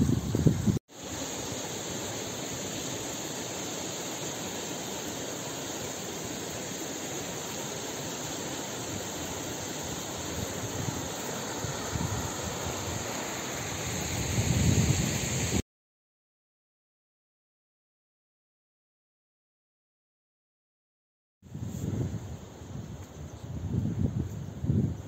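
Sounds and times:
wind buffeting microphone: 0:00.0 - 0:00.8, 0:14.0 - 0:15.6, 0:21.5 - 0:25.0
mountain stream rushing: 0:00.9 - 0:15.6.

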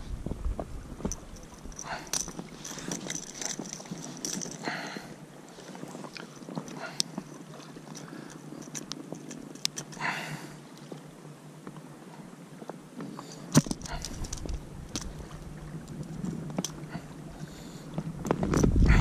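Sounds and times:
pliers clicking and scraping on hook: 0:01.1 - 0:04.6, 0:07.9 - 0:10.0, 0:13.5 - 0:15.1.

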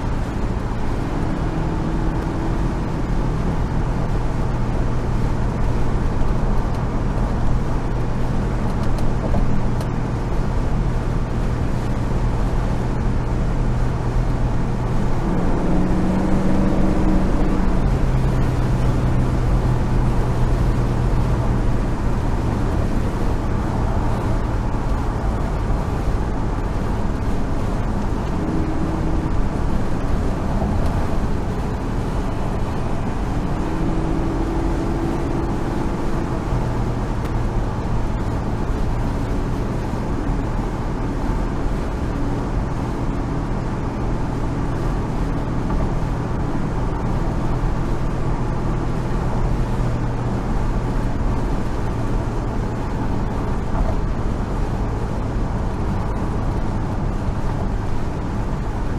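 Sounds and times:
car engine running: 0:00.0 - 0:58.9
road and wind noise: 0:00.0 - 0:58.9.

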